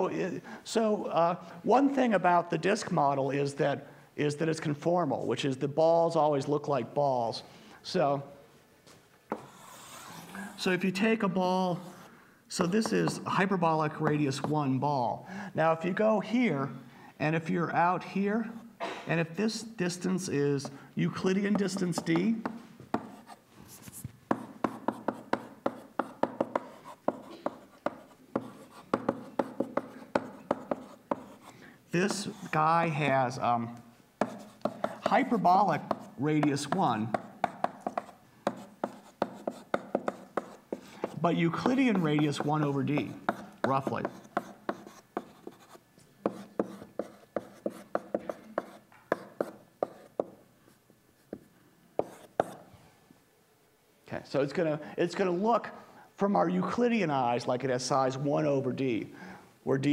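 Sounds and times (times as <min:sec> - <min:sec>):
chalk tapping on blackboard: 0:09.3 - 0:10.2, 0:12.8 - 0:13.2, 0:20.6 - 0:31.5, 0:32.1 - 0:32.6, 0:34.2 - 0:50.4, 0:51.3 - 0:52.7.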